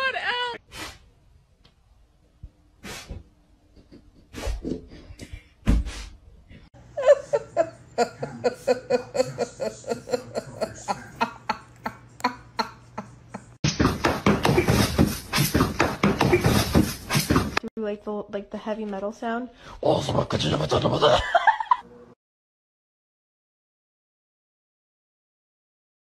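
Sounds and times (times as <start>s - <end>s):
person laughing: 6.8s - 13.6s, 20.6s - 21.8s.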